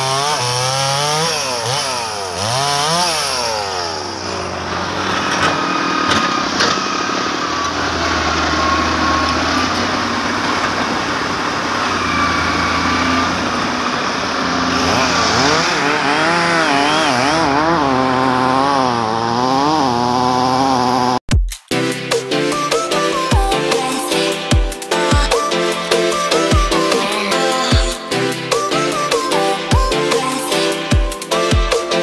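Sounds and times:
machinery engines droning: 0:00.0 - 0:21.2
thin whine: 0:11.6 - 0:15.8
music with wavering melody: 0:21.7 - 0:32.0.

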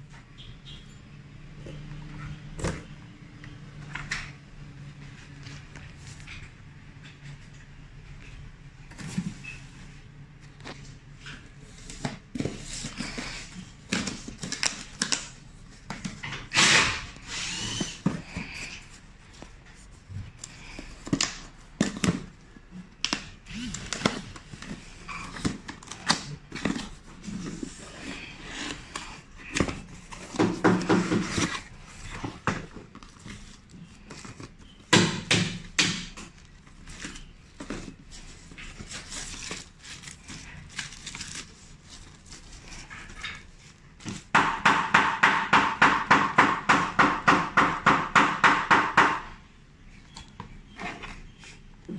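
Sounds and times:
packaging rustling: 0:35.6 - 0:44.3.

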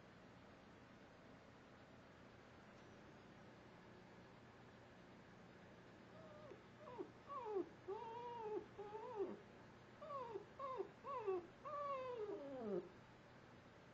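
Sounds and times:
dog whining and howling: 0:06.2 - 0:09.4, 0:10.0 - 0:12.9.

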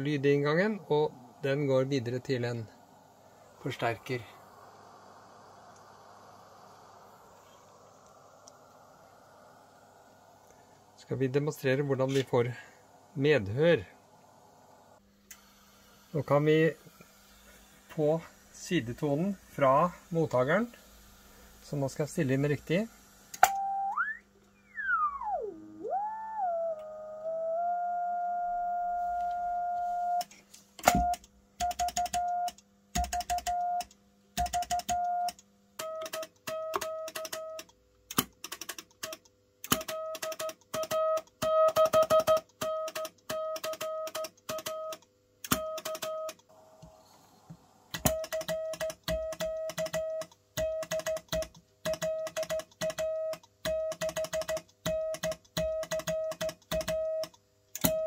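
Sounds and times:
hiss: 0:00.3 - 0:23.4, 0:46.5 - 0:48.2.

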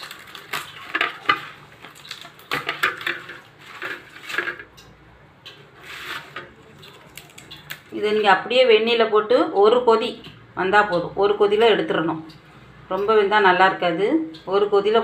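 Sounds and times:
corn husks tearing and rustling: 0:00.0 - 0:04.6, 0:05.8 - 0:07.8.

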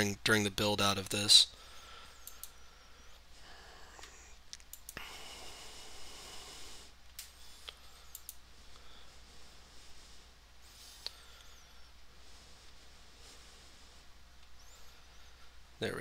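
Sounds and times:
low steady hum: 0:00.0 - 0:16.0
faint computer mouse clicks: 0:02.2 - 0:02.6, 0:07.1 - 0:08.4.

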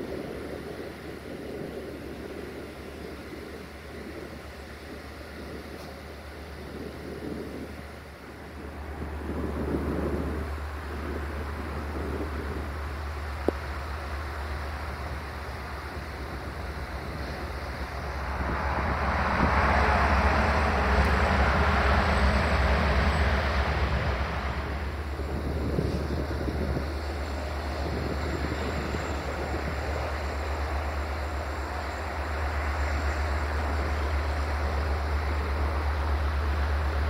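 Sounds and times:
train engine drone: 0:00.0 - 0:37.0
loud rushing noise: 0:17.1 - 0:31.1.

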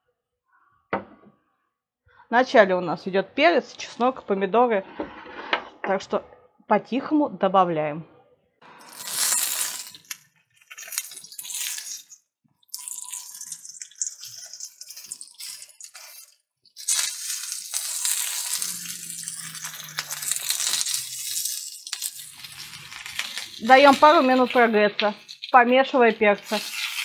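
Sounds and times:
pepper pieces sizzling in oil: 0:08.8 - 0:27.0.

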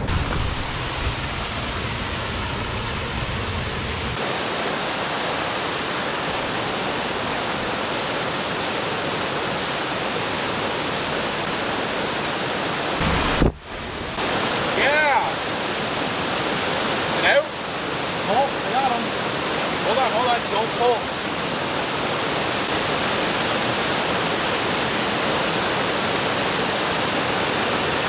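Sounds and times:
low rumble: 0:00.0 - 0:04.2
river water rushing over weir: 0:00.0 - 0:28.0.

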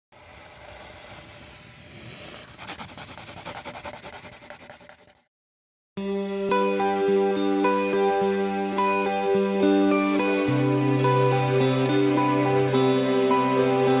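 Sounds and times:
pencil rubbing on paper: 0:00.2 - 0:05.3
pencil scratching strokes: 0:00.2 - 0:05.3
guitar music: 0:06.0 - 0:14.0.

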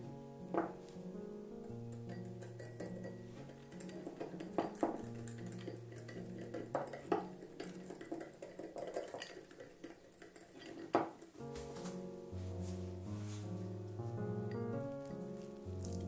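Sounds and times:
soft background music: 0:00.0 - 0:10.0, 0:10.9 - 0:16.0
utensils clinking against dishes: 0:01.9 - 0:12.0.

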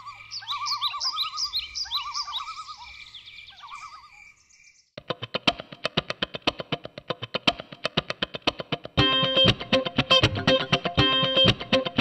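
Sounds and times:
birdsong: 0:00.0 - 0:05.0
guitar picking fast notes: 0:05.1 - 0:12.0.

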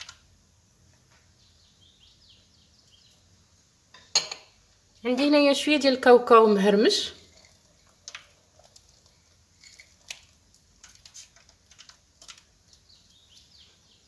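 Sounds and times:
nuts pattering onto batter: 0:00.0 - 0:01.4, 0:07.2 - 0:14.0.

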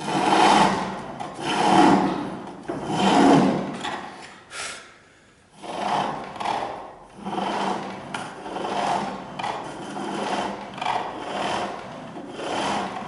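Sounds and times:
chisel cutting spinning wood: 0:00.0 - 0:04.1, 0:05.6 - 0:13.0
short scrape: 0:02.8 - 0:04.9.

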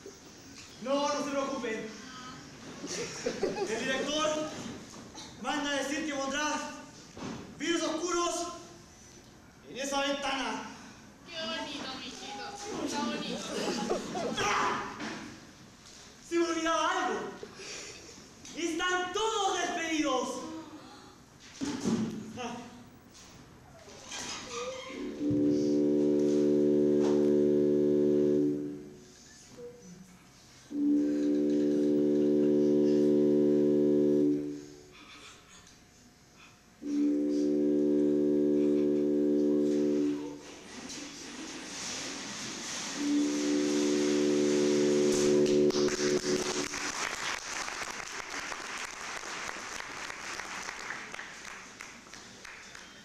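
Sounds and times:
low organ-like held note: 0:25.1 - 0:29.0, 0:30.7 - 0:34.9, 0:36.8 - 0:40.5, 0:43.0 - 0:46.8
audience applauding: 0:43.7 - 0:53.0.

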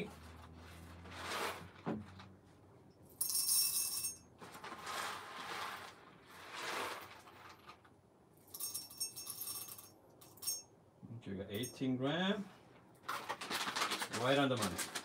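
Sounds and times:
foil bag crinkling: 0:04.4 - 0:07.9, 0:13.0 - 0:15.0.

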